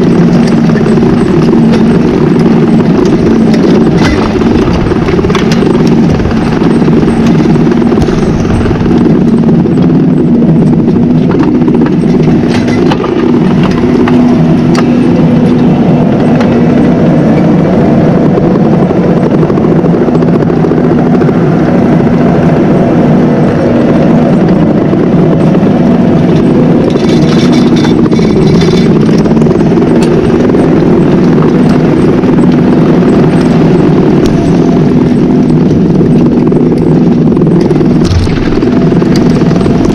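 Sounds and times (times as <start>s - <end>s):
tractor engine droning: 0.0s - 39.9s
clicks and rattles: 0.2s - 9.4s, 26.3s - 29.3s.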